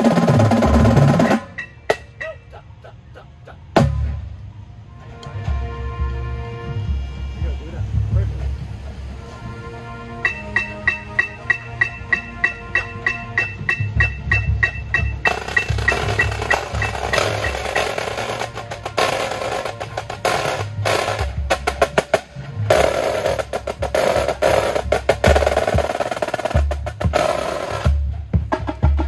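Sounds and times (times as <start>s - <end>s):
marching drums playing: 0.0s - 2.4s, 3.8s - 4.3s, 10.2s - 29.0s.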